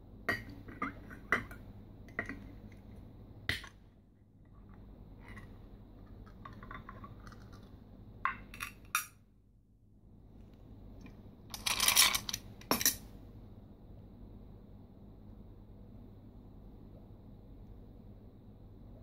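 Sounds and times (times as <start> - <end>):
ice cubes rattling in glass: 11.5 - 12.4.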